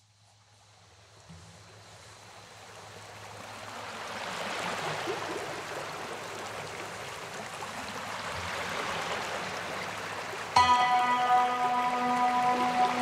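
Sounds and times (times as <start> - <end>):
waterfall rushing: 10.6 - 13.0.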